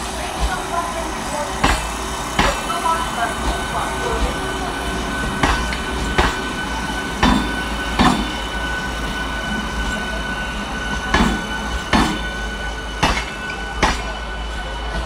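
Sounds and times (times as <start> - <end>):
train rumble: 0.0 - 15.0
train wheels clacking over rail joint: 0.2 - 14.3.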